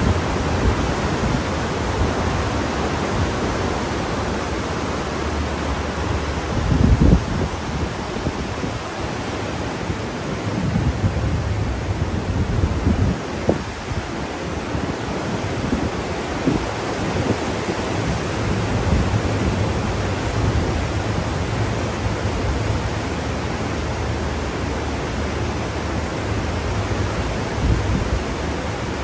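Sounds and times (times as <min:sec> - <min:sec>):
wind buffeting microphone: 0:00.0 - 0:09.3, 0:09.9 - 0:23.0
wind and sea rushing: 0:00.0 - 0:29.0.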